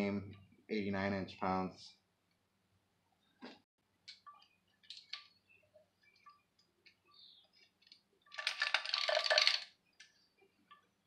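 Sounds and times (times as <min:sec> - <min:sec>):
metallic clinking and rattling: 0:08.3 - 0:09.7.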